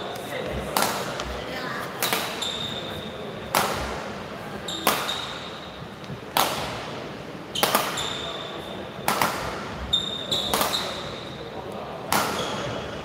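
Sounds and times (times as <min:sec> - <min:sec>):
shoes squeaking on court: 0:00.4 - 0:03.2, 0:04.6 - 0:06.0, 0:07.5 - 0:08.9, 0:09.8 - 0:11.4, 0:12.2 - 0:13.0
rackets hitting shuttlecock: 0:00.6 - 0:01.3, 0:02.0 - 0:02.6, 0:03.5 - 0:04.1, 0:04.7 - 0:05.6, 0:06.3 - 0:07.0, 0:07.6 - 0:08.3, 0:09.0 - 0:11.1, 0:12.0 - 0:12.7.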